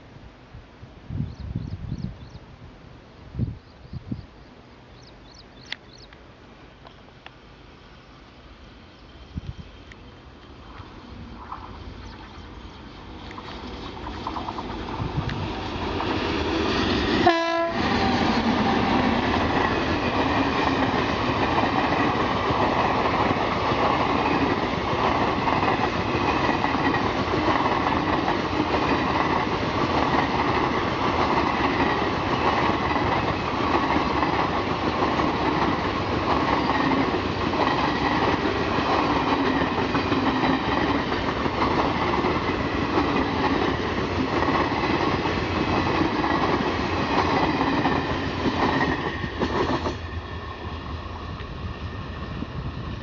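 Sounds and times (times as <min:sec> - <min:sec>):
train wheels rushing on rail: 0:07.6 - 0:53.0
locomotive horn blast: 0:17.2 - 0:17.9.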